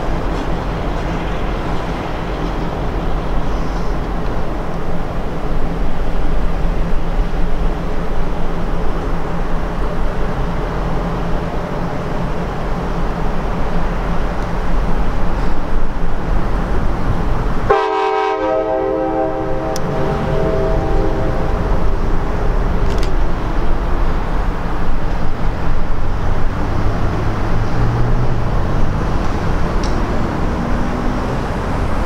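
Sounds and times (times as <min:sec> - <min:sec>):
locomotive air horn chord: 0:17.7 - 0:22.2.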